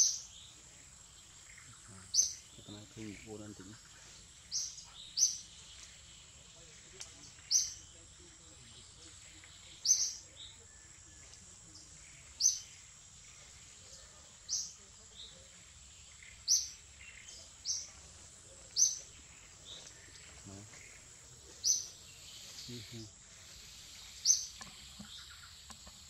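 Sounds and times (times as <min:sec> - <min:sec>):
high insect whine: 0:00.0 - 0:26.0.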